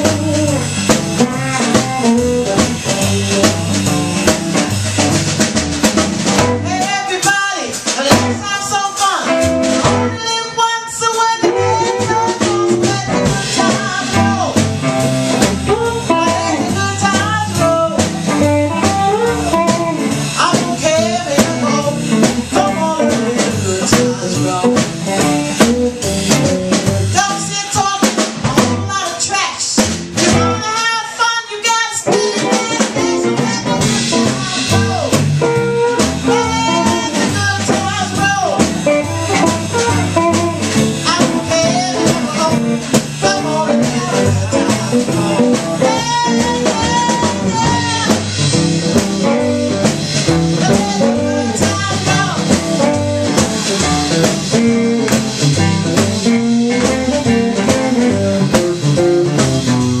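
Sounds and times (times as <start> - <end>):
drum kit: 0.0 - 60.0
electric guitar: 0.0 - 60.0
upright bass: 0.0 - 60.0
woman singing: 9.9 - 14.6, 15.6 - 24.9, 27.1 - 35.2, 36.0 - 38.7, 39.4 - 42.6, 43.2 - 48.3, 50.5 - 52.6.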